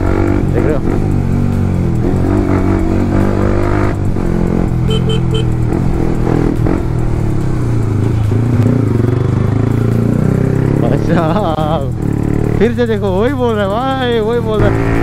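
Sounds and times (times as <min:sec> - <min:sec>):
motorcycle engine running: 0:00.0 - 0:15.0
vehicle horn beeps: 0:04.8 - 0:05.6.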